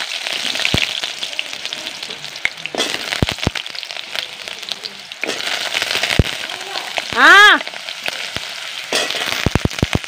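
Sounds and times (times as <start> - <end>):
potatoes sizzling in hot oil: 0.0 - 10.0
metal spatula knocking pan: 8.9 - 9.5.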